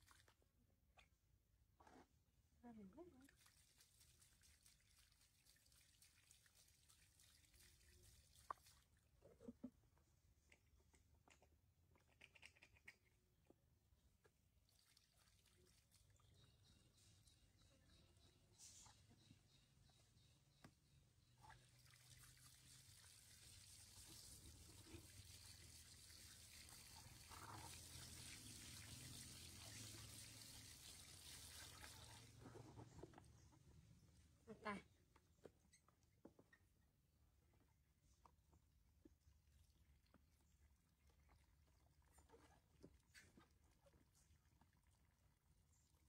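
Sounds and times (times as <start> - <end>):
faint running water: 2.0 - 9.8, 14.0 - 18.3, 21.2 - 36.6.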